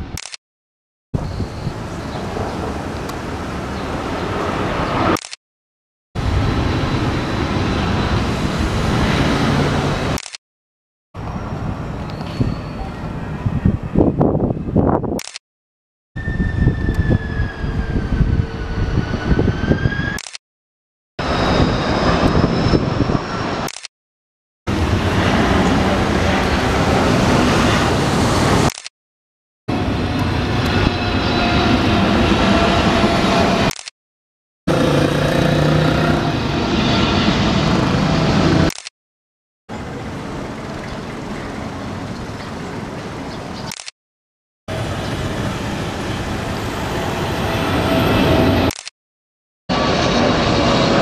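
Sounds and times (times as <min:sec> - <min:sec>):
jet engines rumbling and whining: 0:01.2 - 0:05.2, 0:06.2 - 0:10.2, 0:11.2 - 0:15.2, 0:16.2 - 0:20.4, 0:21.2 - 0:23.9, 0:24.7 - 0:28.8, 0:29.7 - 0:33.9, 0:34.7 - 0:38.8, 0:39.7 - 0:43.8, 0:44.7 - 0:48.8, 0:49.7 - 0:51.0
propeller plane passing overhead: 0:01.7 - 0:05.2, 0:06.2 - 0:10.2, 0:21.2 - 0:23.7, 0:24.7 - 0:28.7, 0:29.7 - 0:33.7, 0:34.7 - 0:38.7, 0:39.7 - 0:43.7, 0:44.7 - 0:48.7, 0:49.7 - 0:51.0.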